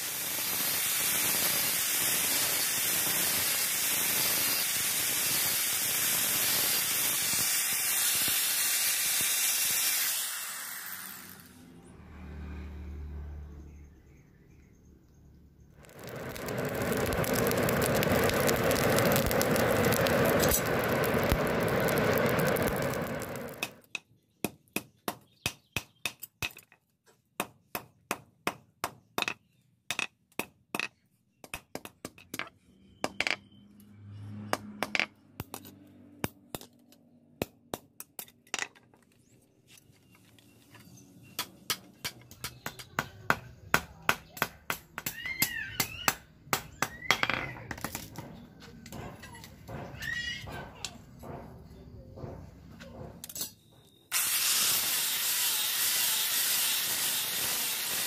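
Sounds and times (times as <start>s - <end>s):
forge blower running: 15.8s - 23.8s.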